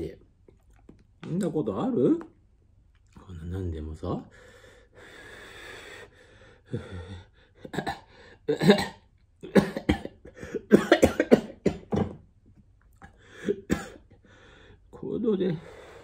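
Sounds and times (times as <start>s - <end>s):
man coughing: 7.6s - 12.1s, 13.4s - 14.2s.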